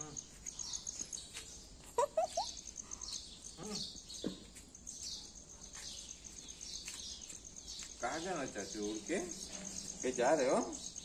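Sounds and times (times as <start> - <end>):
insect trilling: 0.0 - 1.1, 1.8 - 4.0
faint bird chirps: 0.0 - 11.0.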